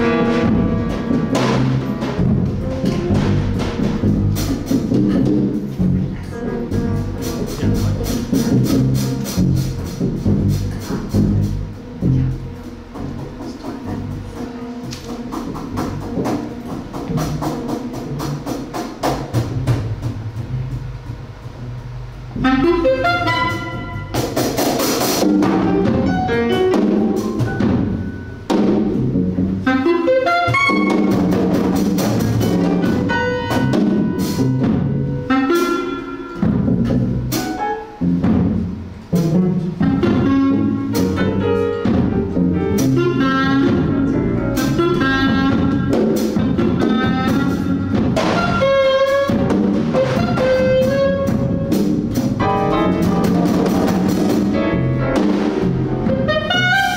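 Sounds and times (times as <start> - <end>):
double bass: 0.0 - 56.9
drum kit: 0.0 - 56.9
piano: 0.0 - 56.9
clarinet melody: 22.3 - 24.5, 25.3 - 38.2, 39.1 - 56.9.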